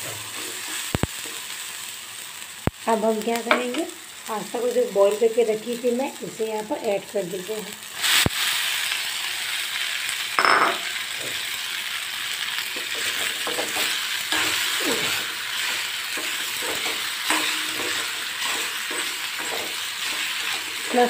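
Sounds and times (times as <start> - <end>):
food sizzling in oil: 0.0 - 21.0
knock on a pan: 10.4 - 10.8
metal spoon scraping a pan: 12.7 - 21.0.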